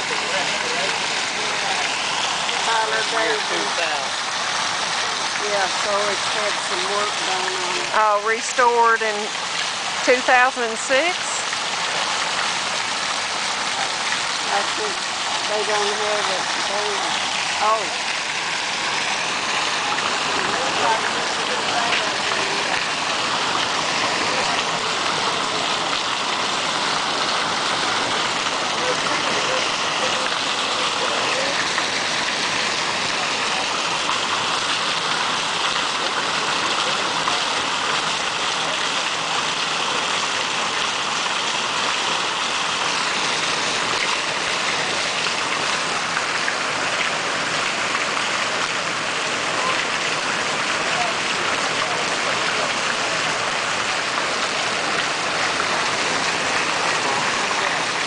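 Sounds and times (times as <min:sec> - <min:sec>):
fountain water splashing: 0:00.0 - 0:58.0.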